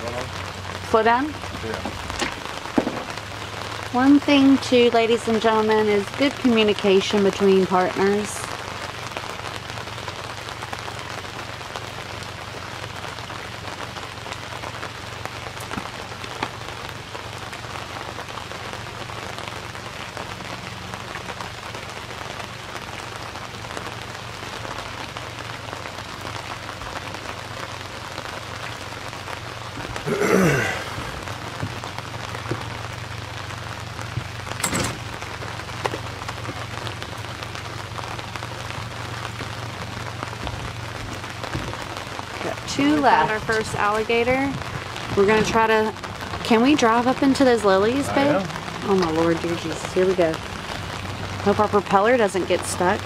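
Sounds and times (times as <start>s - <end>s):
rain hissing on boat: 0.0s - 53.0s
loud thump: 1.8s - 3.2s.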